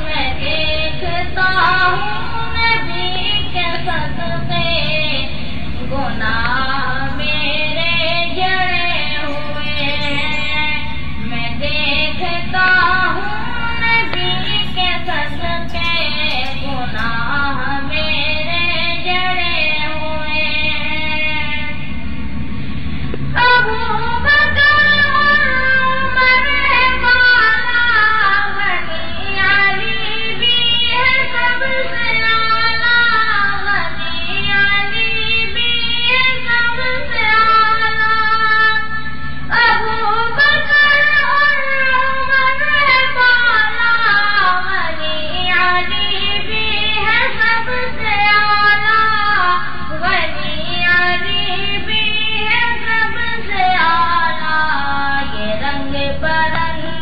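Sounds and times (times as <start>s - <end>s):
high voice singing devotional song: 0.0s - 21.6s, 23.4s - 57.0s
steady low drone: 1.0s - 17.2s.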